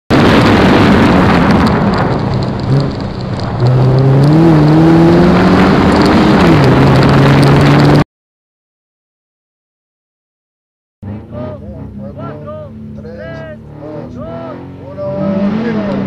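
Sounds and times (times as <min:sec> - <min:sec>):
gravel rattling under tyres: 0:00.1 - 0:08.0
rally car engine under load: 0:00.1 - 0:08.0, 0:11.0 - 0:16.0.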